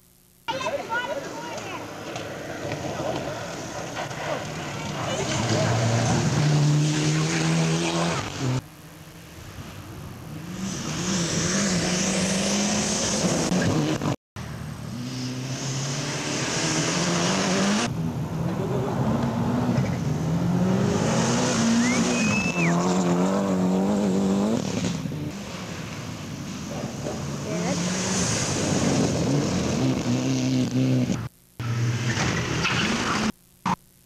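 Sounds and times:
rally car engines revving: 1.8s - 8.6s, 9.2s - 33.3s
gravel hissing under wheels: 2.0s - 6.4s, 24.6s - 31.0s.

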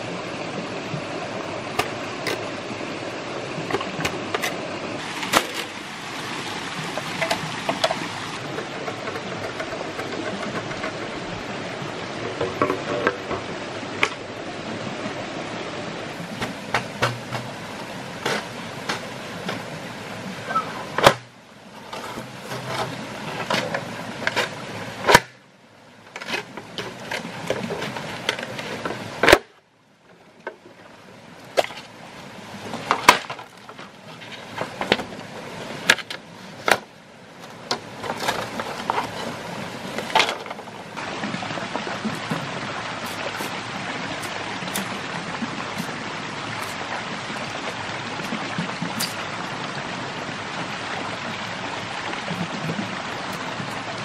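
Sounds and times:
stream rushing over rocks: 0.0s - 54.0s
bamboo poles knocking: 6.9s - 11.2s, 12.1s - 14.2s, 16.4s - 19.7s, 20.6s - 21.3s, 21.9s - 25.4s, 35.8s - 40.8s.

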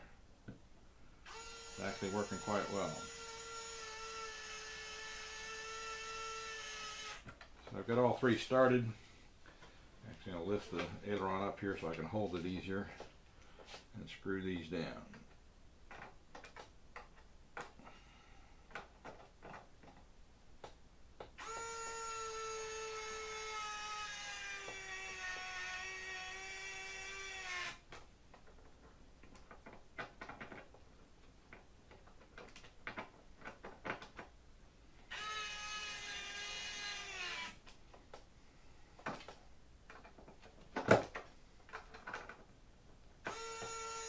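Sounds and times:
electric screwdriver whine: 1.2s - 7.3s, 21.4s - 27.8s, 35.1s - 37.6s, 43.2s - 44.0s.

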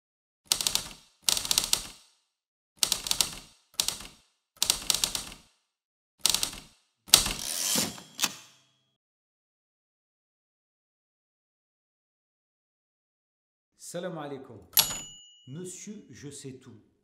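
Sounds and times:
typewriter keys clacking: 0.5s - 2.0s, 2.8s - 5.4s, 6.2s - 7.6s, 14.8s - 15.1s
typewriter carriage rattle: 6.3s - 8.4s
faint bell ring: 14.8s - 15.9s.

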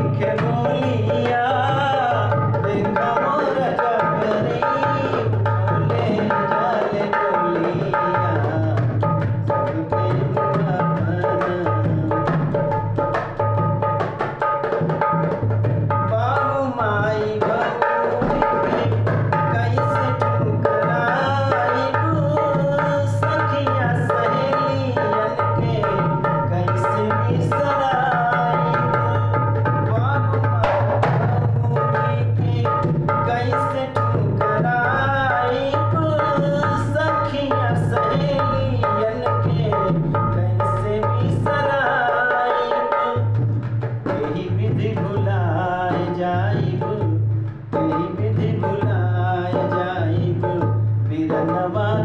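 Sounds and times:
hand drum folk rhythm: 0.0s - 52.0s.

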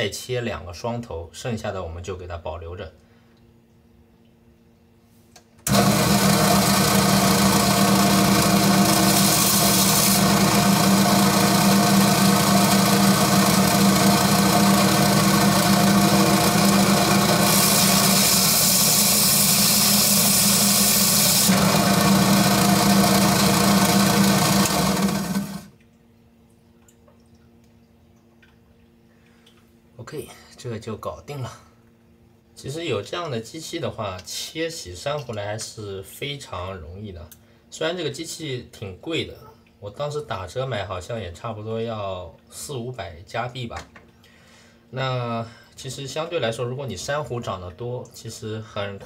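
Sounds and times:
electric saw cutting coral: 5.7s - 25.7s.

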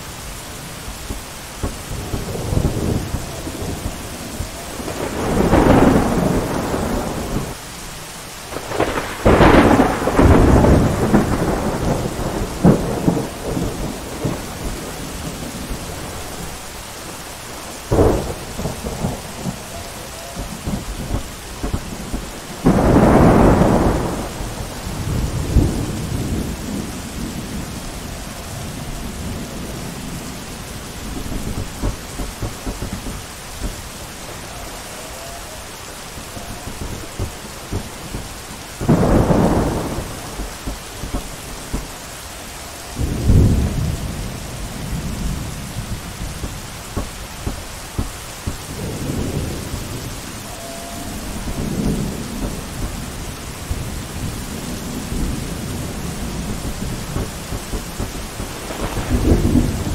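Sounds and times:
rolling thunder rumbles: 0.0s - 7.8s, 8.4s - 59.9s
steady rain: 0.0s - 59.9s
sharp thunder cracks: 1.6s - 7.6s, 8.5s - 16.6s, 17.8s - 27.9s, 28.6s - 34.5s, 36.2s - 42.0s, 43.0s - 59.9s.

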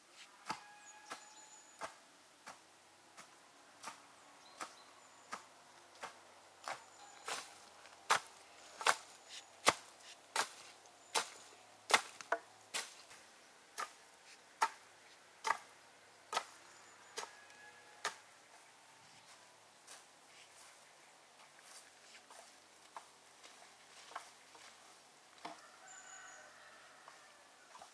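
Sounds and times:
rake through dry chestnut burrs: 0.1s - 15.7s
rake knocking: 5.3s - 13.2s.

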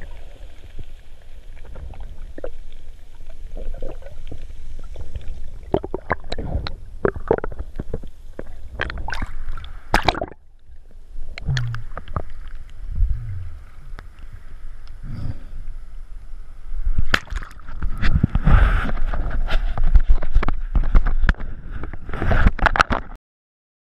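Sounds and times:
water sloshing and gurgling: 0.0s - 15.1s, 16.8s - 23.0s
water splashes and knocks: 17.1s - 18.3s.

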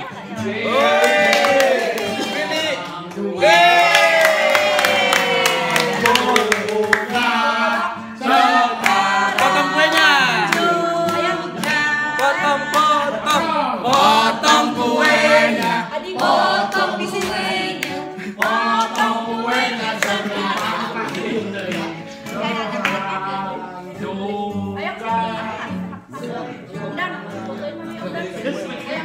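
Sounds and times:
people singing together unaccompanied: 4.8s - 28.8s.

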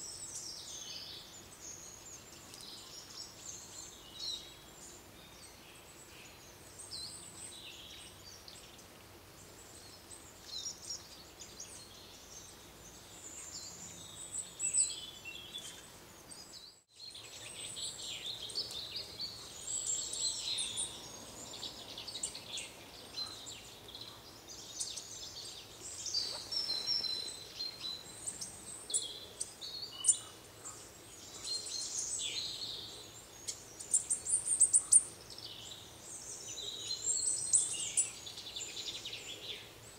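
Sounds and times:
birds chirping and singing: 9.7s - 39.9s.

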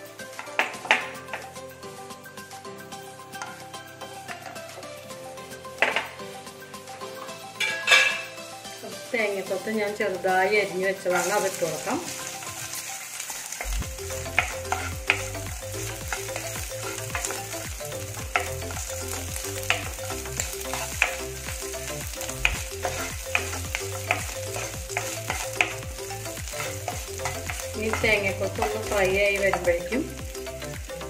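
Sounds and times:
coconut sizzling in pan: 0.0s - 31.0s
wooden spatula scraping pan: 11.0s - 13.7s, 14.3s - 17.5s, 18.4s - 21.4s, 22.5s - 30.0s.

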